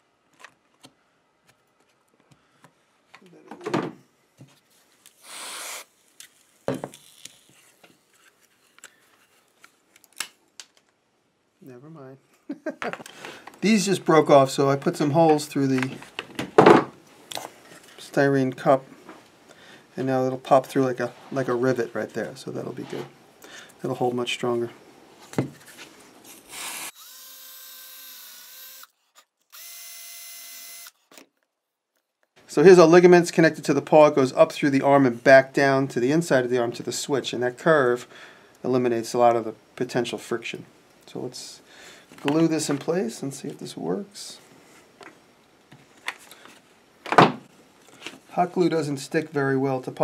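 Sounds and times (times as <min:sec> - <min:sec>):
aerosol spray hiss: 0:05.2 - 0:05.9
cordless drill whining: 0:05.2 - 0:05.9, 0:26.5 - 0:31.2.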